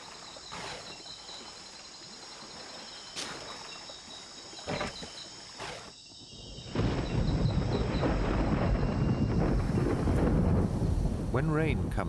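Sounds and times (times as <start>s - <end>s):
elephants splashing in water: 0.0s - 5.9s
insects trilling and chirping: 0.0s - 11.2s
moving water: 0.0s - 12.0s.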